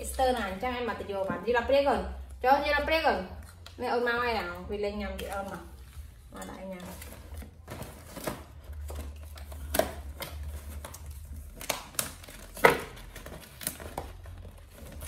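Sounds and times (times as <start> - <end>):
foil packet crinkling: 6.6 - 15.0.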